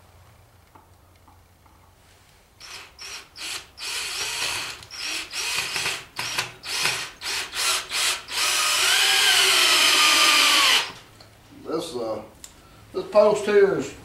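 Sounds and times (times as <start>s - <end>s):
drill driving screw into wood: 2.6s - 11.0s.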